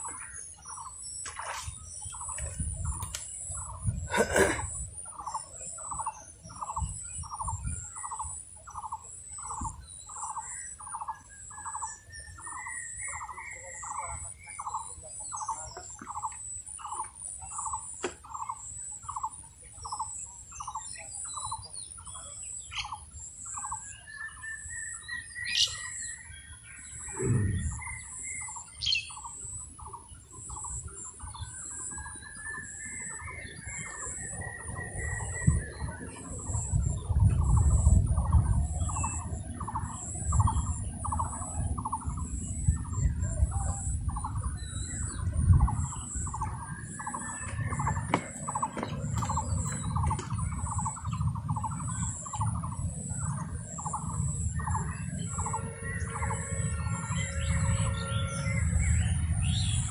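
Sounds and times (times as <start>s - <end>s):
rising bird calls: 26.8s - 29.9s
bird repeating short note: 27.1s - 27.8s.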